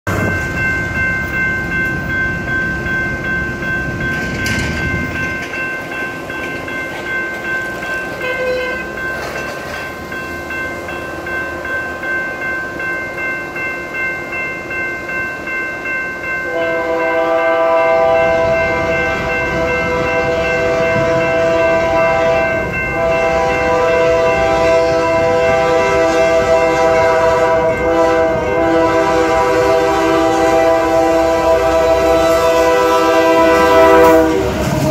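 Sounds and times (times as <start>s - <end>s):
crossing warning bell ringing: 0.1s - 34.9s
train rumble: 0.1s - 34.9s
locomotive air horn blasts: 8.2s - 8.9s, 16.4s - 34.9s.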